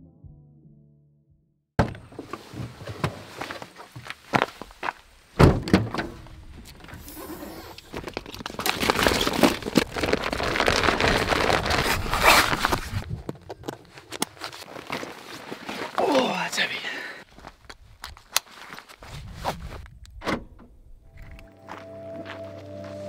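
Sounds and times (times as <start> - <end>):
car door shutting: 5.4 - 6.2, 20.2 - 20.7
plastic bag rustling: 7.7 - 13.0.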